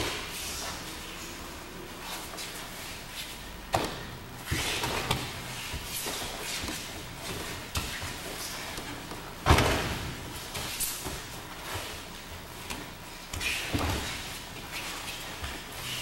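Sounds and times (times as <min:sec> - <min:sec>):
bodies thudding on mats: 0:03.7 - 0:15.8.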